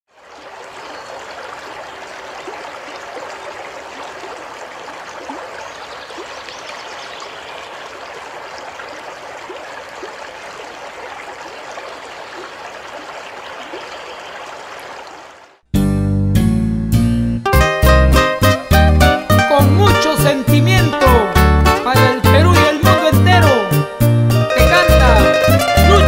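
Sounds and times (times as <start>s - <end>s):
running water: 0.1s - 15.6s
water bubbling: 0.1s - 15.6s.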